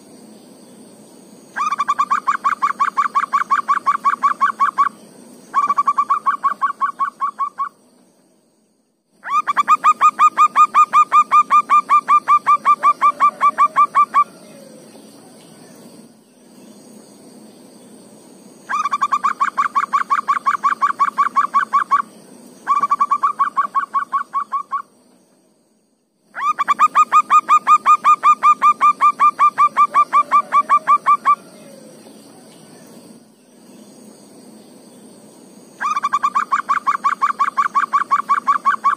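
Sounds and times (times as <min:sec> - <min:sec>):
faint high whine: 0:00.0 - 0:38.9
dove calling in rapid trains: 0:01.6 - 0:07.8, 0:09.2 - 0:15.0, 0:18.7 - 0:25.0, 0:26.4 - 0:32.5, 0:35.8 - 0:38.9.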